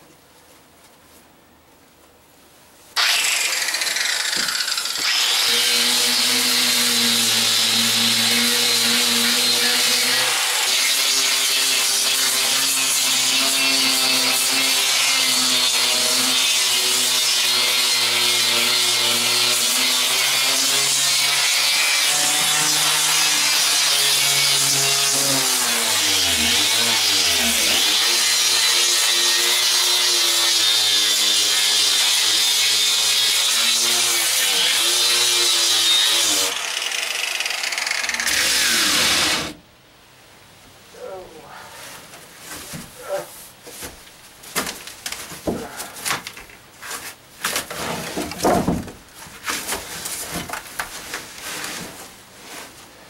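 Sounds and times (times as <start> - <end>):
electric grinder on fiberglass: 3.0 - 39.6.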